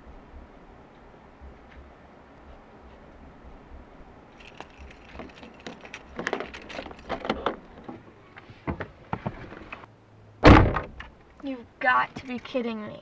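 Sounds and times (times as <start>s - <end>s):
keys jingling: 4.4s - 7.4s
car door unlatching and opening: 10.4s - 11.0s.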